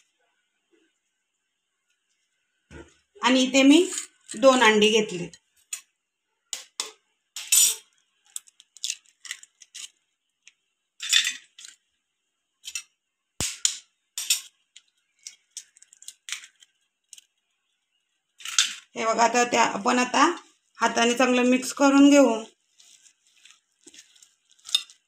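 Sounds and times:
eggs cracking into metal bowl: 13.4s - 17.3s.

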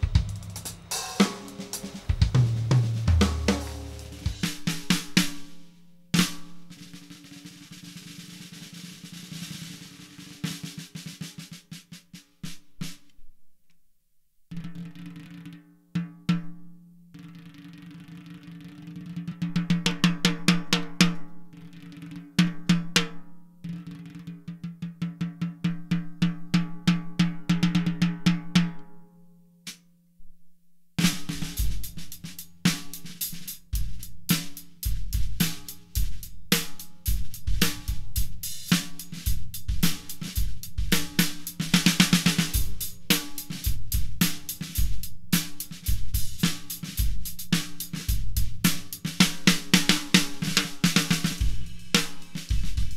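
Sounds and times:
snare drum rolls: 0.0s - 5.6s, 6.2s - 13.0s, 31.0s - 52.9s
drum kit groove: 0.0s - 13.1s, 31.0s - 52.9s.

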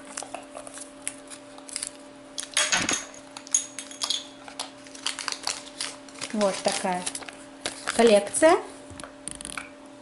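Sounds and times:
paper crinkling: 0.1s - 2.0s, 4.5s - 8.4s.

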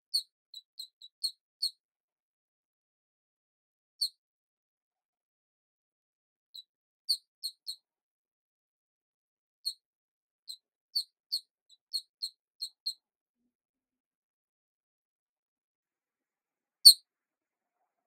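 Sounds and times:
high-pitched mouse-like squeaks: 0.1s - 1.8s, 6.6s - 7.8s, 10.5s - 13.0s.

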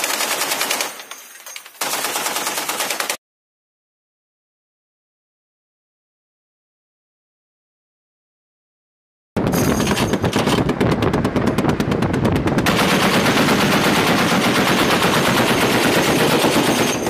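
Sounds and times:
heavy machine gun firing: 0.0s - 1.0s, 1.8s - 3.2s, 9.4s - 17.0s.

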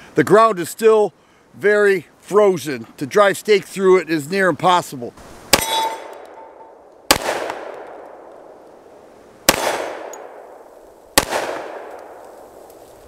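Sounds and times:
pistol shots echoing: 5.5s - 8.6s, 9.5s - 12.5s.

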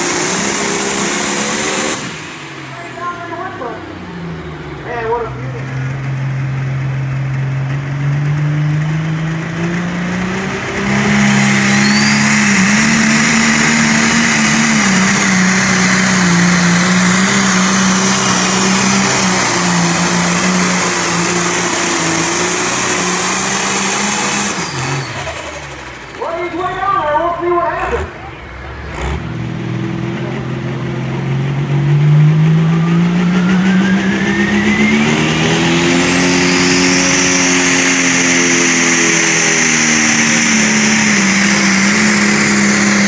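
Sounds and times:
tractor engine revving: 0.0s - 43.0s
whistle: 11.2s - 12.8s, 32.6s - 35.3s.

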